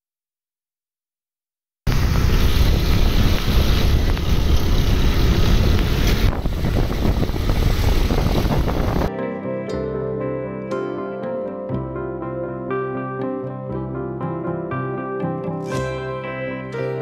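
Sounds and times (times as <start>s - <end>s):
wind rumble on microphone: 1.9s - 9.1s.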